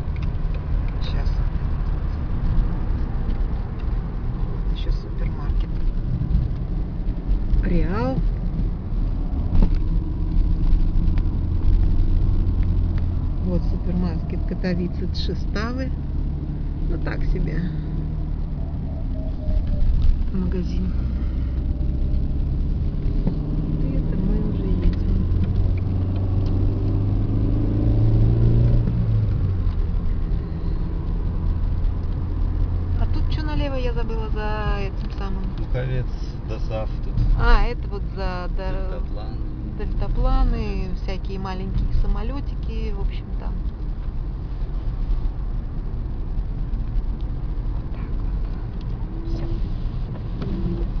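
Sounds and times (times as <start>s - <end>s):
car engine rumble: 0.0s - 51.0s
road noise inside car: 0.0s - 51.0s.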